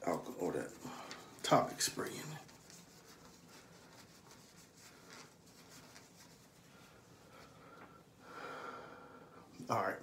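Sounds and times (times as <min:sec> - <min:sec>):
faint rubbing of eyeglasses: 0:00.0 - 0:07.6.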